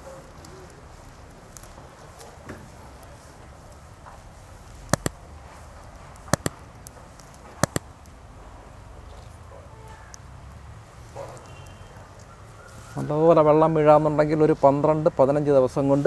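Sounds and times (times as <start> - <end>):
faint outdoor background: 0.0 - 16.0
double mouse clicks: 4.9 - 5.2, 6.2 - 6.6, 7.6 - 7.9.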